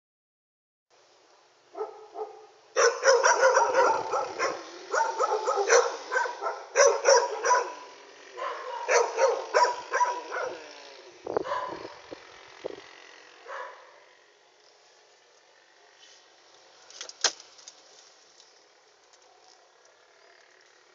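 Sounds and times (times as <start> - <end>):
dog barking: 1.7 - 10.7, 11.4 - 12.0, 13.4 - 14.0.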